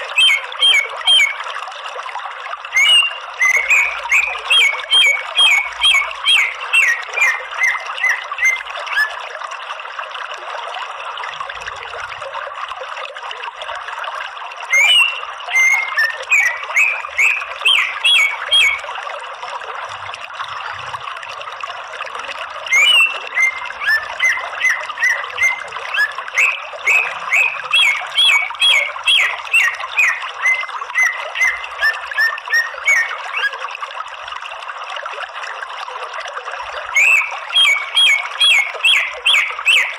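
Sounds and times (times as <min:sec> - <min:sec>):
bird calling sharp repeated notes: 0:00.0 - 0:01.5, 0:02.7 - 0:09.2, 0:14.7 - 0:18.8, 0:22.7 - 0:33.6, 0:36.9 - 0:39.9
running water: 0:00.0 - 0:39.9.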